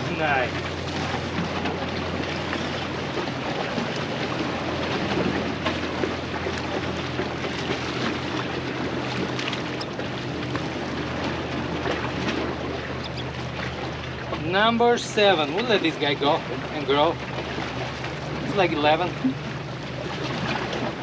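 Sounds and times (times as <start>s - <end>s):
motorboat engine humming: 0.0s - 21.0s
wind and water wash: 0.0s - 21.0s.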